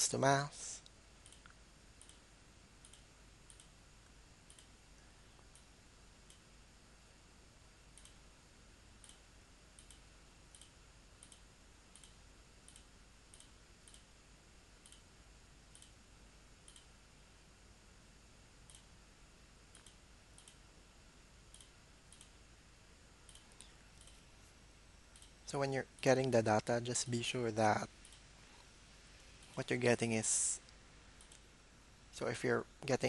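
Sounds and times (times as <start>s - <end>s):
low steady hiss: 0.0s - 33.0s
computer mouse clicks: 0.8s - 2.2s, 2.8s - 3.8s, 4.4s - 4.7s, 7.9s - 8.2s, 9.0s - 14.1s, 14.8s - 15.1s, 15.7s - 16.0s, 16.6s - 16.9s, 18.6s - 18.9s, 19.7s - 20.6s, 21.5s - 22.4s, 23.2s - 24.2s, 25.1s - 25.4s, 28.0s - 28.3s, 31.2s - 31.5s.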